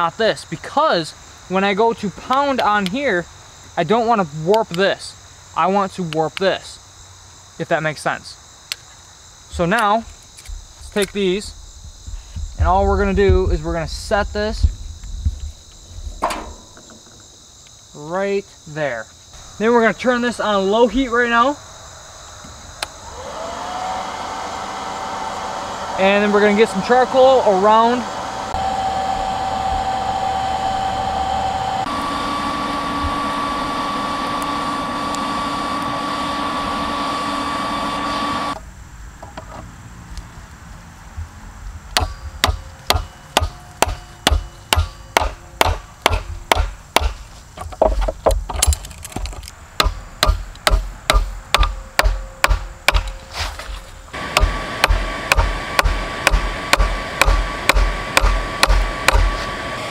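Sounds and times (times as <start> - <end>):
hammer striking hot metal: 16.2 - 17.1, 42.0 - 47.2, 49.8 - 53.3, 54.2 - 59.4
electric blower whining: 22.8 - 38.6, 54.1 - 59.9.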